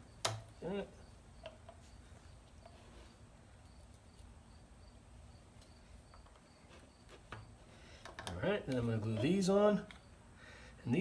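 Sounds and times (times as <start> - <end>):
cricket chirping: 0.0 - 8.0, 9.2 - 10.7.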